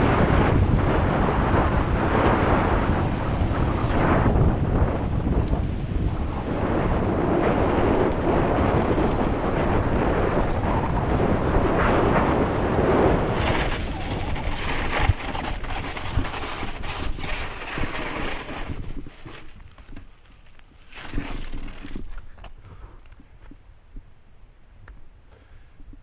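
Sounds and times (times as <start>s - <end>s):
wind rushing on microphone: 0.0s - 20.1s
tyres rolling over loose dirt: 0.0s - 22.6s
bike rattling over bumps: 0.0s - 22.9s.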